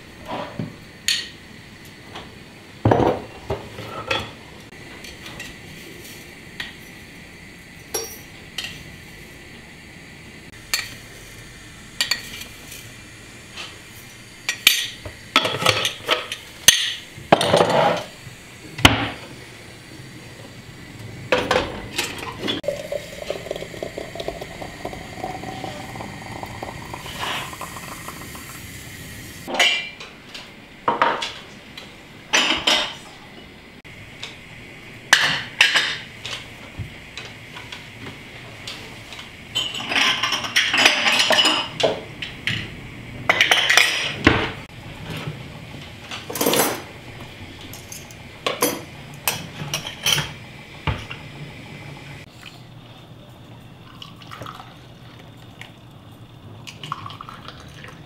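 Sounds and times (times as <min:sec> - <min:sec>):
tea pouring: 0:22.6 - 0:29.5, 0:53.8 - 0:55.9, 0:56.6 - 0:58.0.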